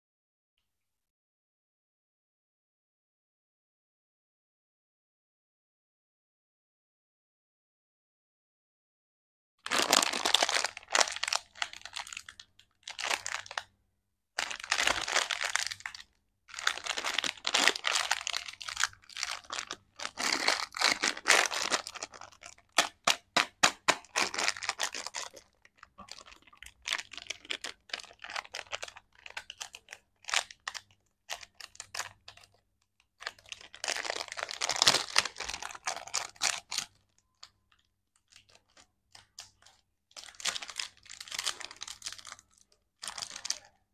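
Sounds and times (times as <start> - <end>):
plastic wrapper crinkling: 9.7 - 13.7, 14.4 - 43.9.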